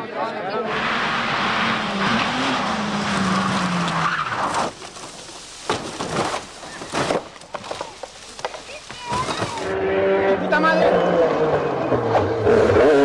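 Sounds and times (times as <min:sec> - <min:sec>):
car engine: 0:00.6 - 0:06.6, 0:09.2 - 0:13.0
tyres skidding on tarmac: 0:00.6 - 0:13.0
car crashing knocks: 0:02.6 - 0:09.7.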